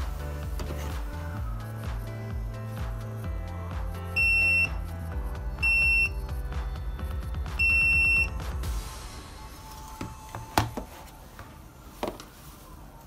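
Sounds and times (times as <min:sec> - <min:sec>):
background music: 0:00.0 - 0:13.0
multimeter buzzer beeping: 0:04.2 - 0:04.8, 0:05.6 - 0:06.2, 0:07.6 - 0:08.3.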